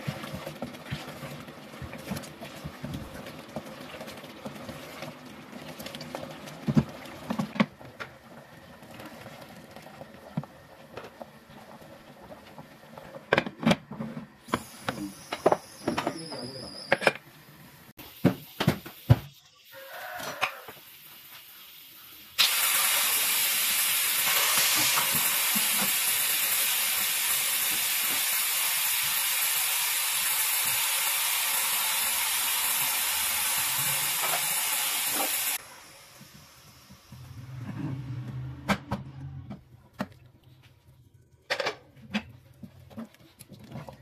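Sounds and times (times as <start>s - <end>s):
pressure cooker hissing steam: 14.4s - 37.4s.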